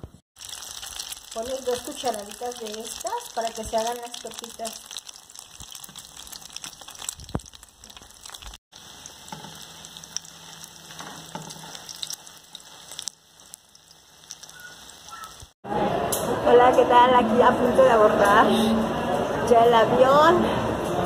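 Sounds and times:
fritters sizzling in hot oil: 0:00.1 - 0:15.6.

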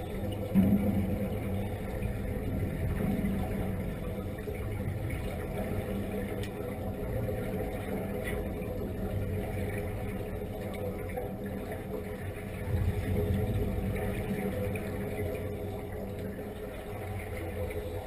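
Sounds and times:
underwater mechanical hum: 0:00.0 - 0:18.0.

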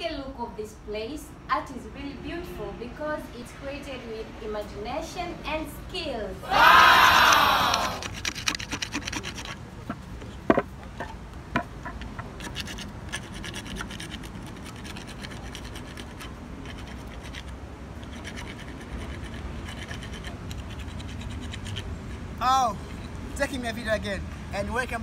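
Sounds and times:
carving tool scraping wood: 0:08.0 - 0:10.4, 0:11.6 - 0:22.3.

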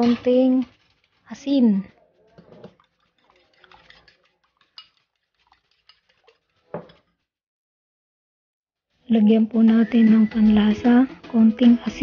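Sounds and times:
utensil clinking against bowl: 0:02.0 - 0:07.1.

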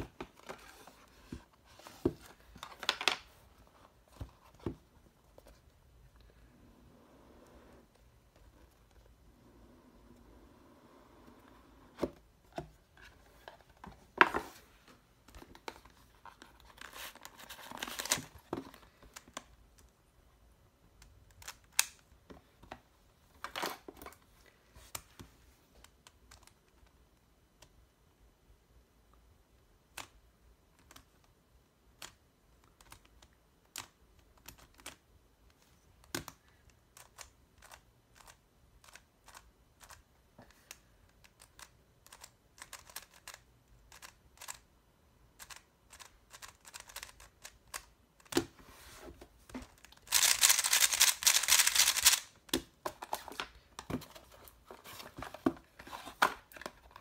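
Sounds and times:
cardboard packaging rustling: 0:12.8 - 0:19.0, 0:48.7 - 0:57.0
plastic cube clicks: 0:49.8 - 0:53.3.

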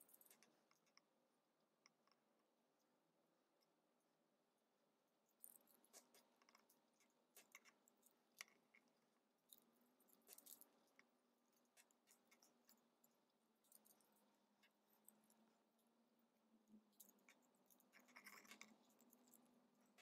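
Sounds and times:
knife blade shaving plastic: 0:17.0 - 0:20.0.

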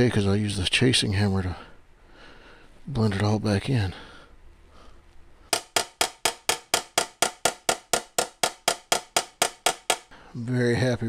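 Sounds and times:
hammer tapping brass bell: 0:05.6 - 0:10.1.

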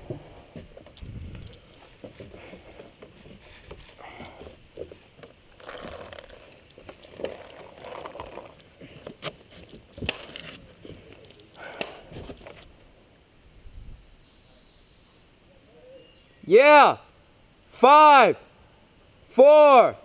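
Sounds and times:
footfalls on wooden ladder: 0:00.0 - 0:06.2.

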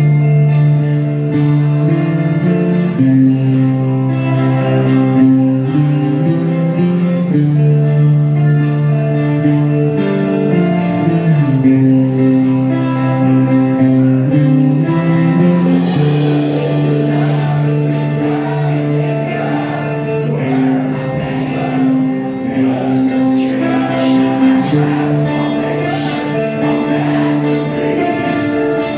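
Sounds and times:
distorted electric guitars: 0:00.0 - 0:28.9
drum kit: 0:14.9 - 0:22.1
cymbal crash: 0:15.6 - 0:18.8
man singing: 0:15.6 - 0:28.9.

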